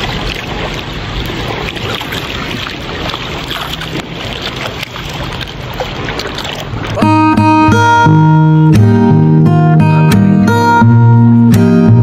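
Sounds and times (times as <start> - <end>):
sea water rushing and crackling: 0.0 - 9.5.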